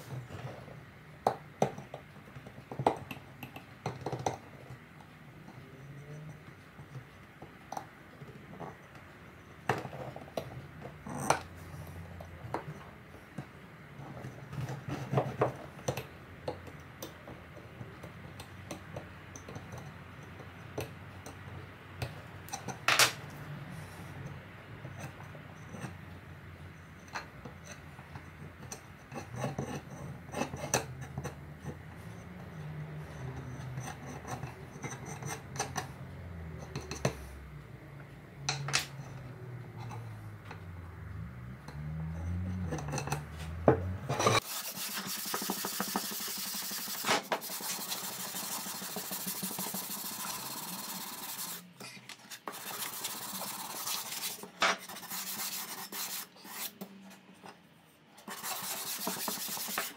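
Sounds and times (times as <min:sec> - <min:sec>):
sanding block rasping on wood: 0:44.4 - 0:51.6, 0:52.5 - 0:56.7, 0:58.3 - 0:59.9.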